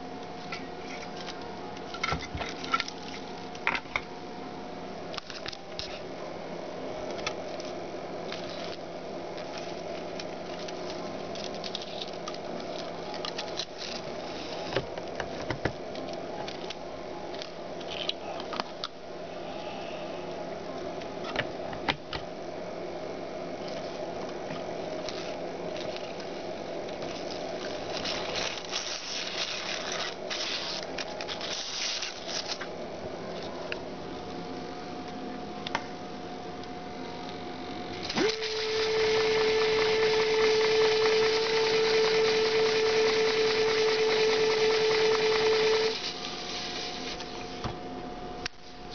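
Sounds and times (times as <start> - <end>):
tape crackle: 7.2 - 14.2, 25.0 - 32.7
small motor humming: 37.9 - 47.7.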